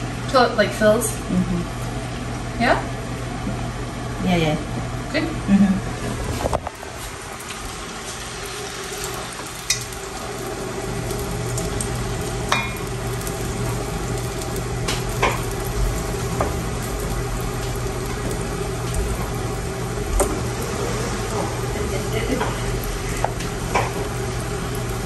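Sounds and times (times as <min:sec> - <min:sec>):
steady low hum: 0:00.0 - 0:25.0
batter sizzling in pan: 0:05.9 - 0:25.0.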